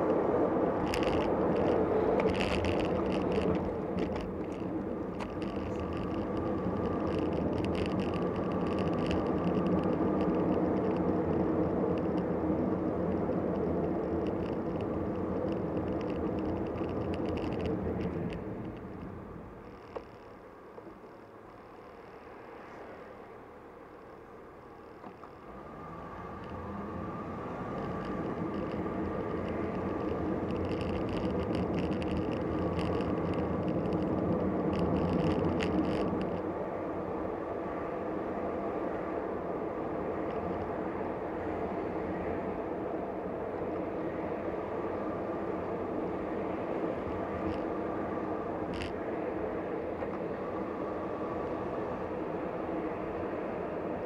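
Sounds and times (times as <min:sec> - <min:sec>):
car engine and tyre noise: 0:00.0 - 0:54.0.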